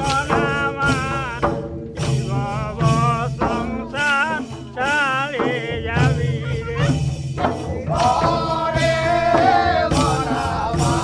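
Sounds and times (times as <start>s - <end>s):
man singing folk song: 0.0s - 1.6s, 2.2s - 7.0s.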